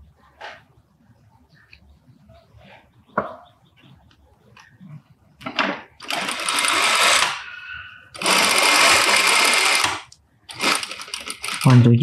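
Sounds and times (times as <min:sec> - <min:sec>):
sewing machine stitching: 0:06.0 - 0:07.4, 0:08.2 - 0:11.8.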